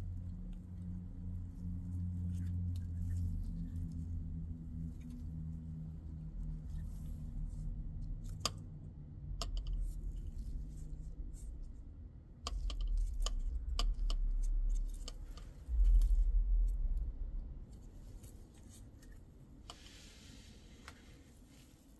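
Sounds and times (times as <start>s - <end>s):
low rubbing rumble: 0.0s - 21.7s
small sharp clicks and rattles: 12.4s - 16.2s.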